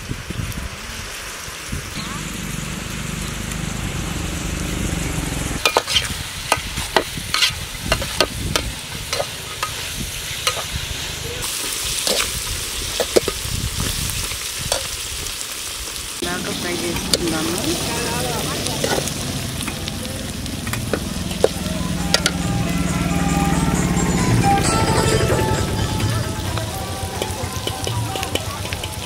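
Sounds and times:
onions sizzling in a pot: 0:00.0 - 0:29.0
low steady rumble: 0:01.9 - 0:05.6
metal ladle scraping a pot: 0:05.6 - 0:08.3, 0:09.0 - 0:10.7, 0:20.6 - 0:22.6.

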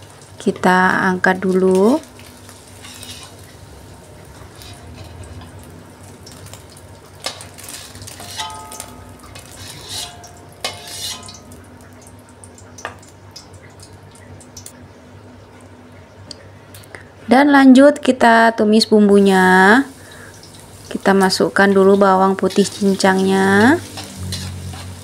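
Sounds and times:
oil sizzling faintly: 0:00.0 - 0:17.1, 0:18.8 - 0:25.0
metal spatula scraping wok: 0:02.7 - 0:03.5, 0:04.4 - 0:05.7, 0:07.2 - 0:11.4, 0:21.8 - 0:25.0.

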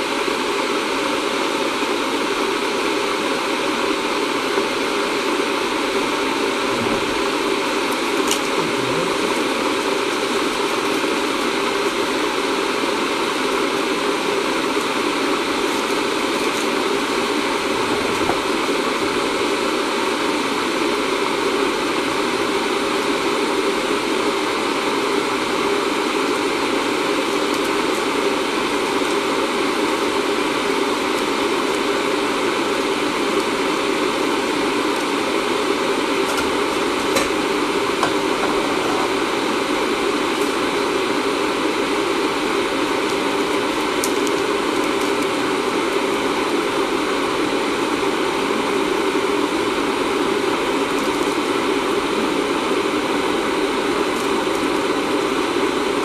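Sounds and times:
loud steady rushing noise: 0:01.2 - 0:56.0.

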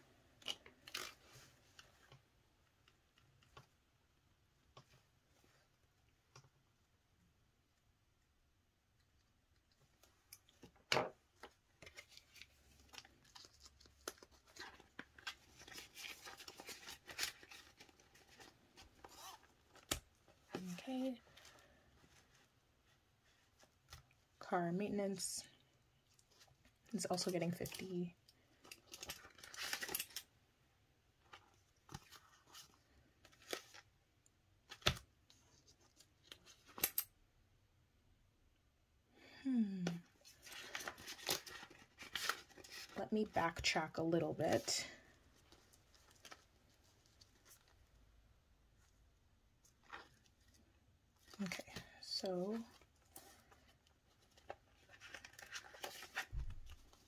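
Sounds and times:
plastic crinkling and rustling: 0:11.3 - 0:24.2, 0:26.1 - 0:30.3, 0:40.2 - 0:43.7, 0:49.6 - 0:57.0.

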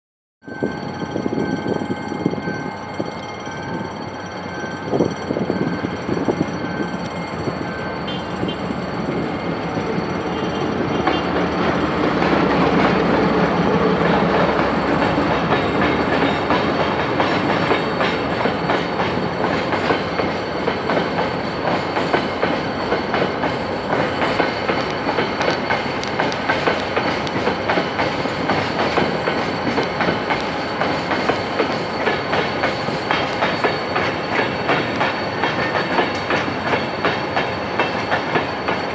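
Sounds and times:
diesel locomotive passing: 0:00.4 - 0:38.9
wagons clacking over rail joints: 0:08.3 - 0:38.9.

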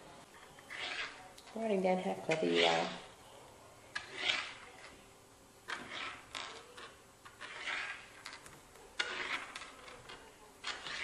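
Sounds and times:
beads rubbing on tabletop: 0:00.5 - 0:01.3, 0:03.9 - 0:05.0, 0:05.7 - 0:11.0.

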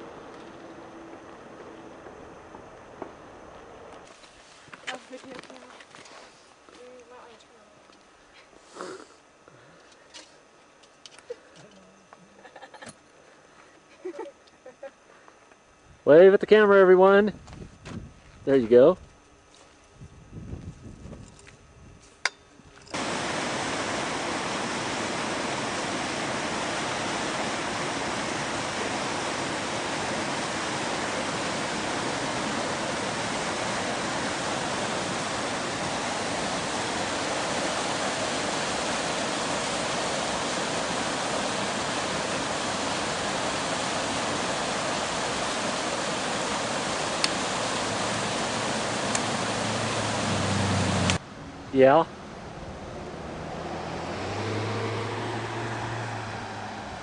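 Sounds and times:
rushing water: 0:23.0 - 0:51.2.

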